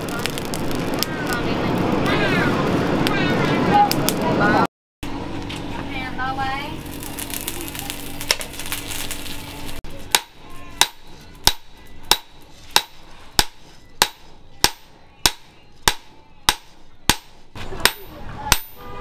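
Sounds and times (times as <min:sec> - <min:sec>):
forge blower humming: 0:00.0 - 0:19.0
hammer striking steel on anvil: 0:10.1 - 0:19.0.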